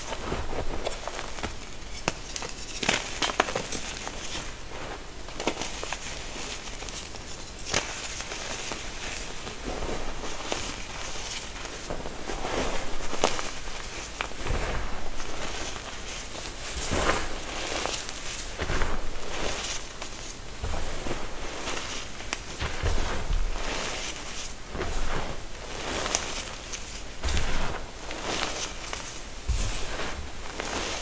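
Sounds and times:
hands crumbling chalk: 0.8 - 4.5.

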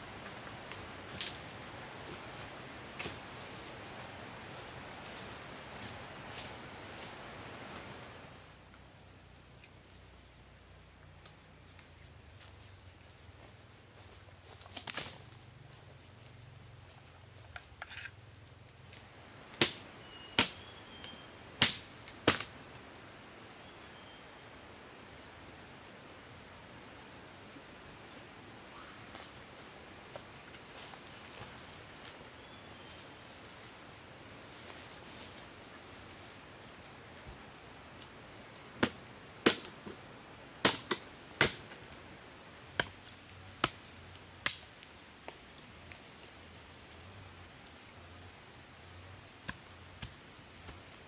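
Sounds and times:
machete chopping wooden sticks: 19.6 - 19.8, 20.4 - 20.7, 21.6 - 22.5, 38.8 - 40.0, 40.6 - 41.7, 42.8 - 43.8.

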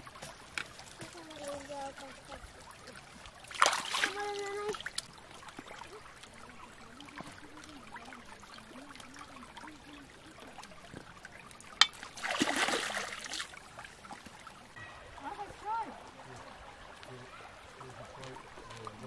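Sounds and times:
stream trickling over stones: 0.0 - 19.0
water splash: 0.0 - 19.0.

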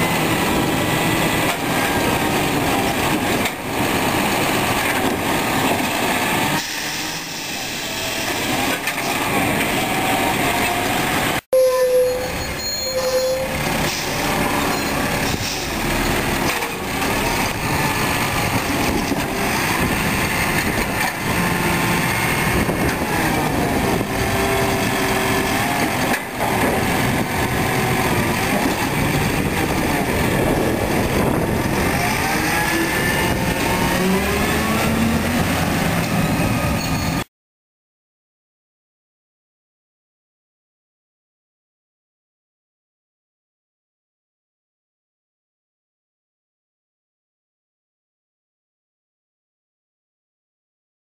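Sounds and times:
garbage truck diesel engine revving: 13.5 - 36.7.

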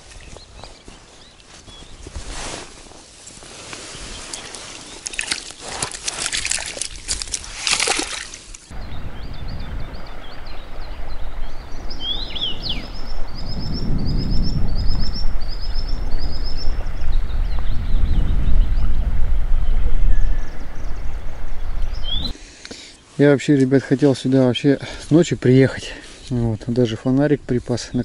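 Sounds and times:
small songbird singing: 0.2 - 2.2, 8.7 - 22.4
water splashing and sloshing: 2.2 - 8.7.

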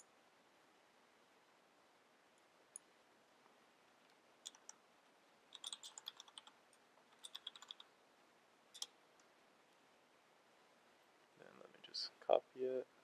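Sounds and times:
mechanical keyboard typing: 4.4 - 4.8, 5.5 - 7.9.

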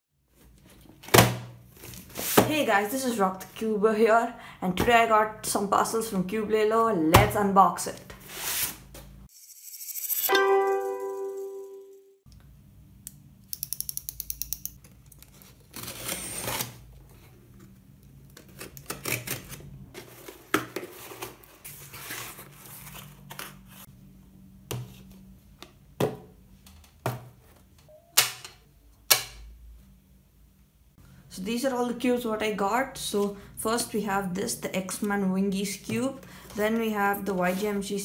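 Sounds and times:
cardboard rustling and scraping: 1.7 - 2.6, 18.4 - 23.9.

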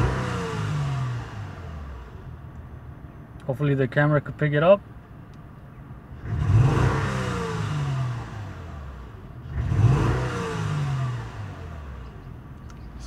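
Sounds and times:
misfiring car engine revving: 0.0 - 2.2, 6.2 - 12.2.

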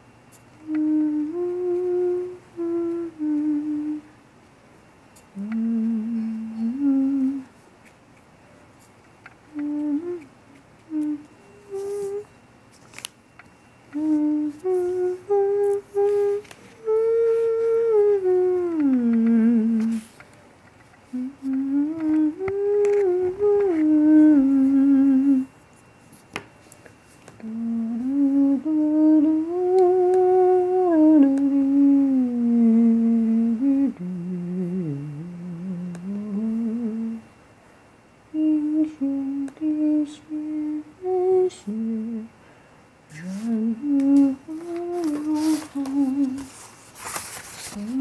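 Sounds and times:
person humming: 0.6 - 4.1, 5.3 - 7.6, 9.5 - 12.4, 13.9 - 20.2, 21.1 - 25.5, 27.4 - 37.2, 38.3 - 42.4, 43.1 - 46.7, 47.5 - 48.0.

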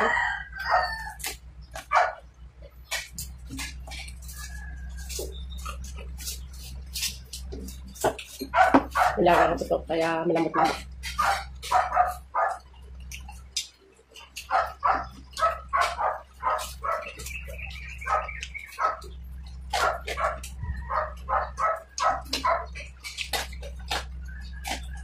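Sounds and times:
dog barking and yipping: 1.8 - 2.3, 8.0 - 9.8, 10.5 - 12.7, 14.4 - 24.0
dog mouth clicks eating: 10.7 - 25.0.

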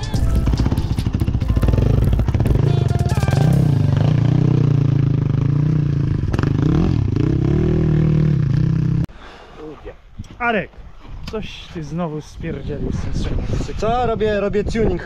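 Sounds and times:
motorcycle engine revving: 0.0 - 9.1.

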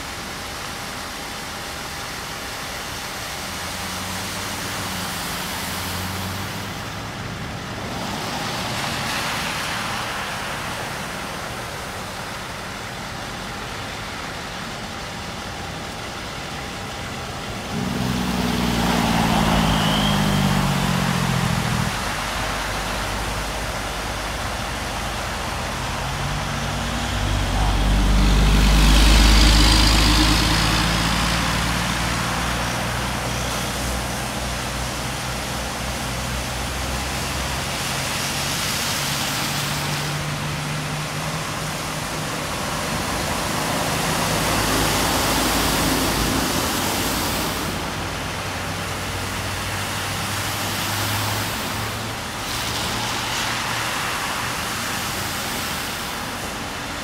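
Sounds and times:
heavy truck rumbling: 0.0 - 55.1
tyres splashing through water: 2.5 - 57.0
vehicle engine passing: 17.5 - 54.6.

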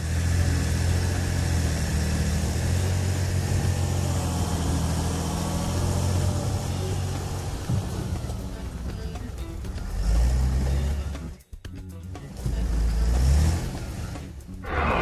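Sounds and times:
tractor engine running: 0.0 - 11.3.

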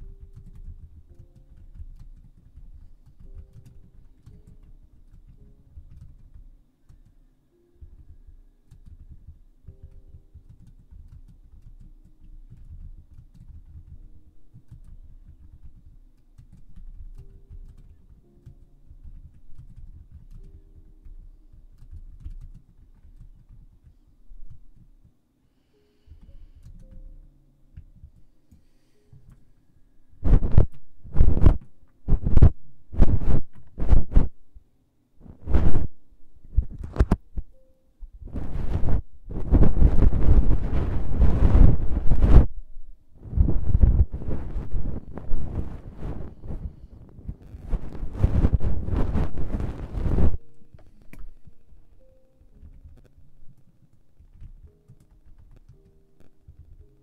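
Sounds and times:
feather brushing on microphone: 35.2 - 35.9, 38.3 - 42.6, 43.2 - 50.5.

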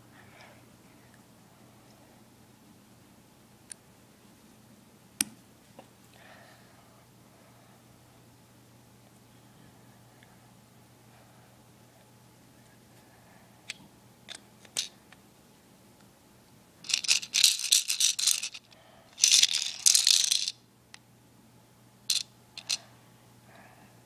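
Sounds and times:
plastic shaker rattling: 16.8 - 20.6, 22.1 - 22.8.

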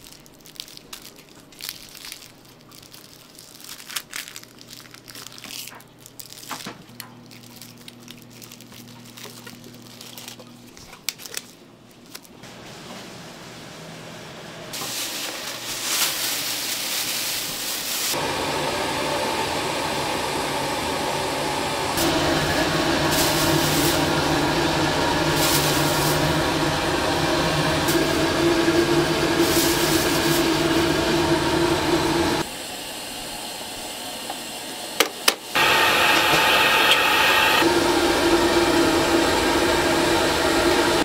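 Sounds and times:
motor-driven machine humming: 35.0 - 41.0.

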